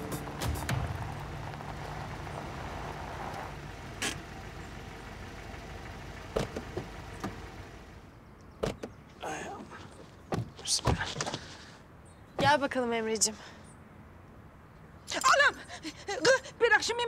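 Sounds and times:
car engine running: 0.0s - 8.1s
car door opening: 6.2s - 7.7s, 8.6s - 9.0s.

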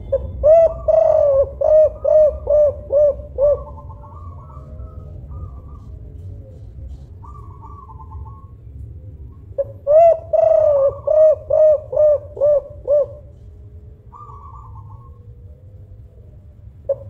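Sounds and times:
dove cooing: 0.0s - 17.0s.

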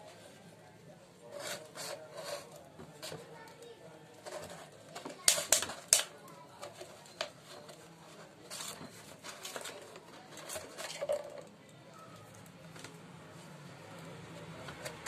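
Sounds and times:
thin plastic crinkling and tapping: 2.6s - 13.0s.

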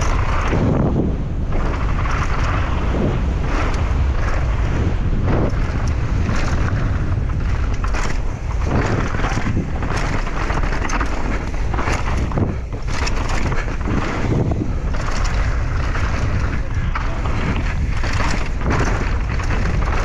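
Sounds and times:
bike clattering over rough ground: 0.0s - 20.0s
wind rushing over microphone: 0.0s - 20.0s.

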